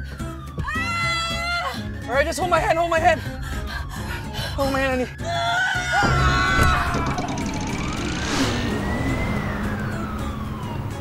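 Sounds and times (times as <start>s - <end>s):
siren wailing: 0.3s - 1.9s, 3.8s - 11.0s
road traffic rumble: 7.0s - 11.0s.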